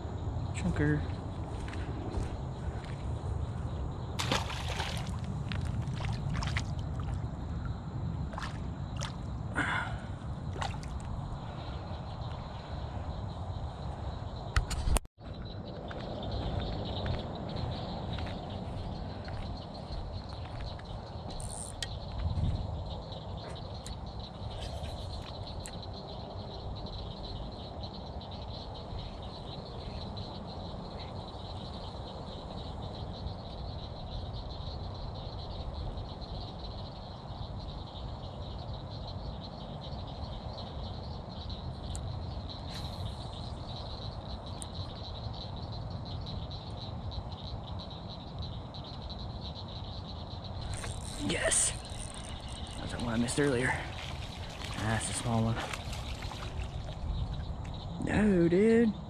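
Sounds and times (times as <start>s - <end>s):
frogs calling: 0.0s - 59.0s.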